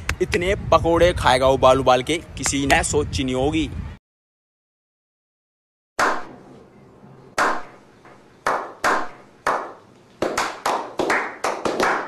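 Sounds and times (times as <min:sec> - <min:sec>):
people clapping: 0:08.5 - 0:12.0.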